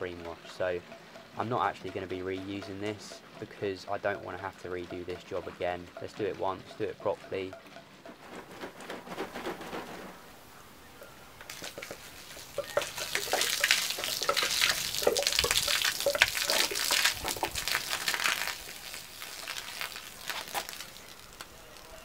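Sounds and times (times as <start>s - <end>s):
liquid pouring onto paving: 11.5s - 22.0s.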